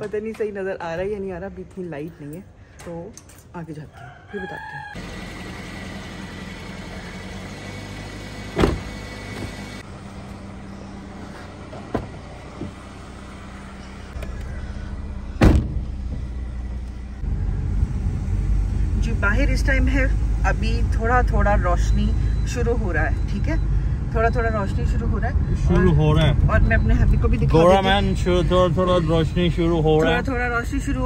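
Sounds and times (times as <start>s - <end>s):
road noise: 0.0s - 31.0s
car engine running: 5.0s - 23.7s
car door shutting: 7.7s - 9.8s, 11.7s - 12.8s, 15.3s - 16.4s.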